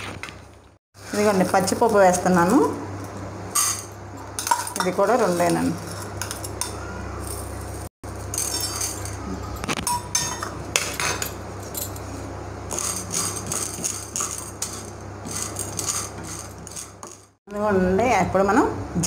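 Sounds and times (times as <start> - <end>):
spatula scraping pan: 12.2 - 17.4
seeds rattling in pan: 12.7 - 17.3.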